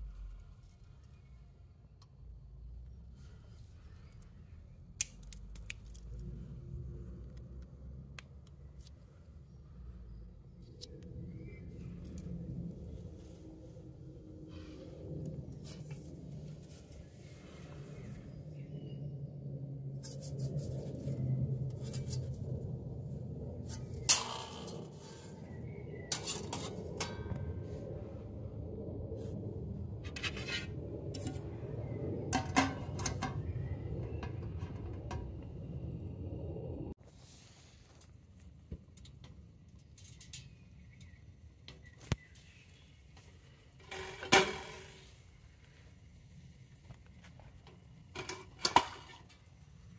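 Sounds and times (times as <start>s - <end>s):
low steady hum: 0.0s - 37.0s.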